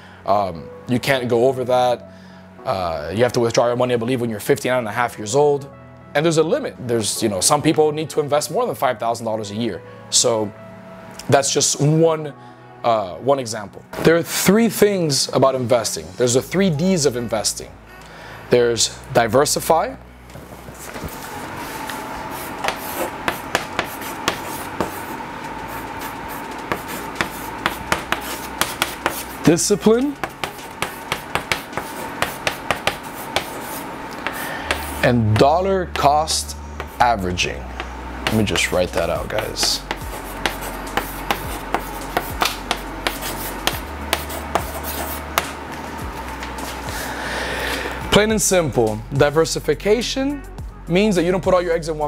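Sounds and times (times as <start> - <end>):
chalk scratching on chalkboard: 22.3 - 35.5, 36.8 - 37.0, 38.2 - 45.6
chalk tapping on board: 22.4 - 25.1, 26.0 - 36.1, 37.8 - 45.6.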